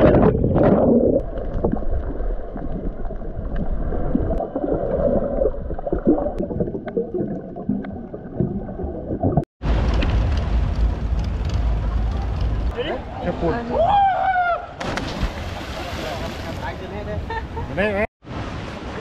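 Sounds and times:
underwater rush and bubbles: 0.0s - 12.7s
splash into water: 14.8s - 16.7s.

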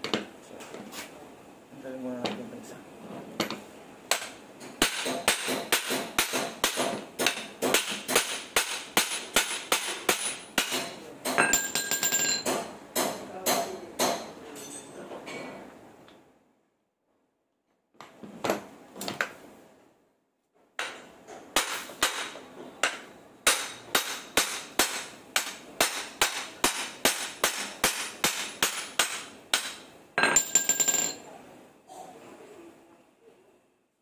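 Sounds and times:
hammer striking metal: 3.4s - 14.8s, 21.6s - 31.2s
ringing metallic clatter: 11.4s - 12.5s, 30.2s - 31.3s.

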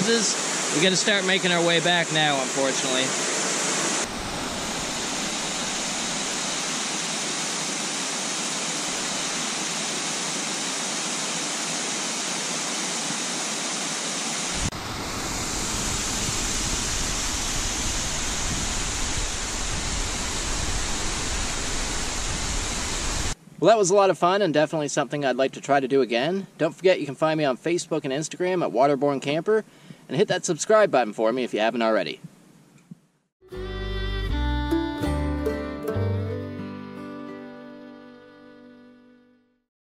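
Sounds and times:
waterfall rushing: 0.0s - 23.4s.

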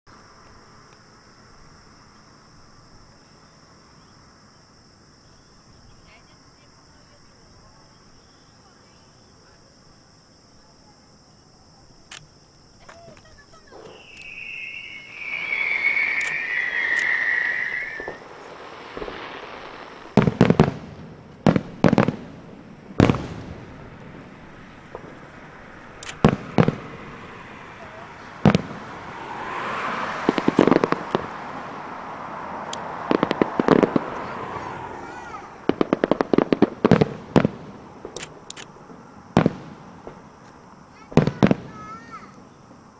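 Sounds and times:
fireworks shells booming: 12.1s - 42.5s
high falling whistle: 13.7s - 20.2s.

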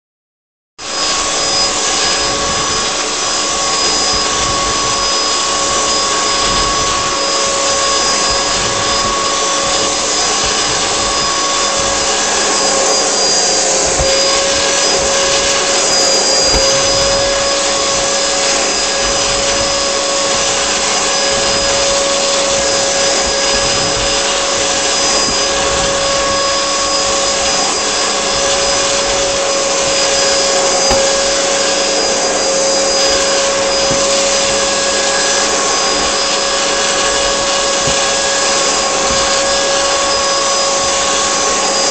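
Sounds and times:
vacuum cleaner running: 0.8s - 41.9s.

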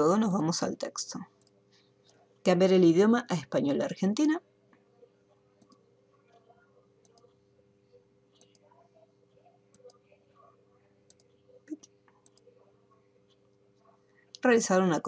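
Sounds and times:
low steady hum: 0.0s - 15.0s
computer mouse clicks: 5.6s - 7.4s, 8.3s - 8.7s, 9.7s - 10.0s, 11.1s - 12.5s.

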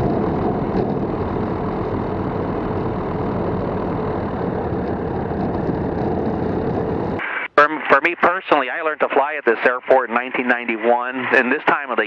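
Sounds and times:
aircraft engine and propeller: 0.0s - 7.2s.

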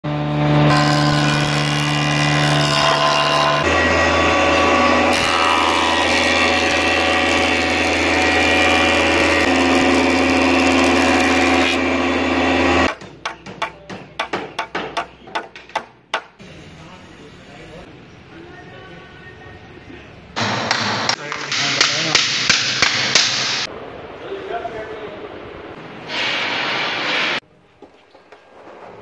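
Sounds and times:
wood planer running: 0.1s - 12.9s.

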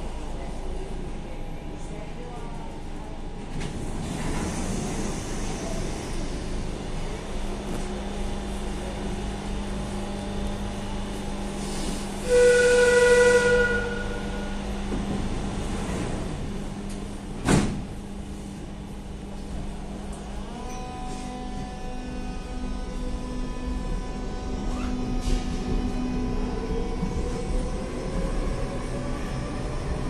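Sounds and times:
train whistle: 12.2s - 14.6s.

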